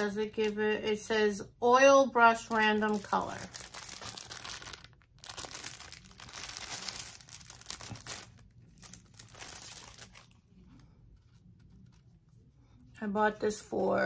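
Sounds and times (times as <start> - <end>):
plastic bag crinkling: 2.4 - 10.7.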